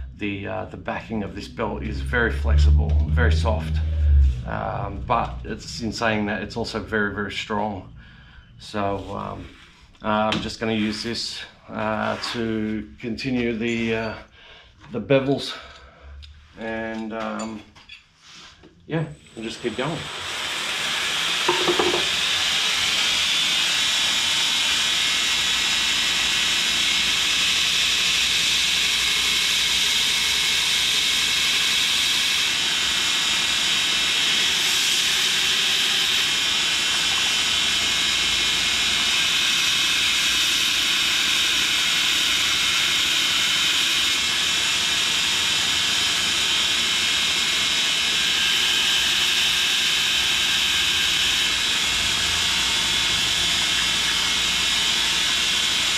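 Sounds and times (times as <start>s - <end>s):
abrasive belt grinding steel: 0.8s - 8.0s, 19.3s - 55.9s
grinder motor hum: 0.8s - 8.1s, 19.1s - 55.9s.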